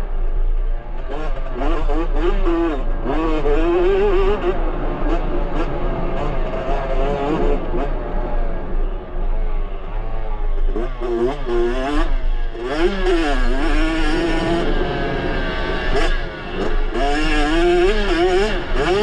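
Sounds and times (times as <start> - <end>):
two-stroke engine revving: 10.6 - 19.0.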